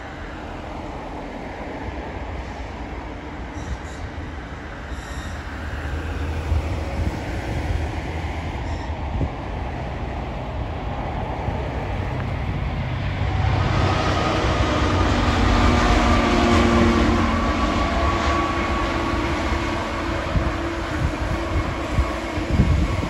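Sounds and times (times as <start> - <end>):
diesel locomotives passing: 0.0 - 23.0
train rumbling: 0.0 - 23.0.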